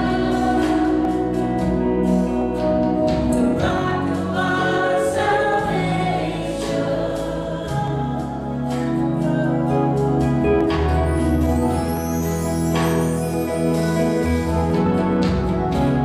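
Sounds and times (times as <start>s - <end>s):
voices singing together: 0.0s - 1.8s, 3.5s - 10.3s
band playing: 0.0s - 16.0s.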